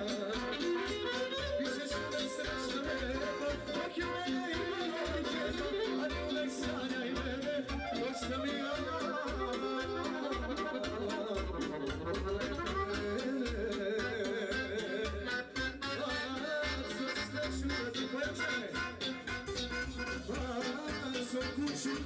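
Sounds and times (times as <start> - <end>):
folk band with accordion: 0.0 - 22.0.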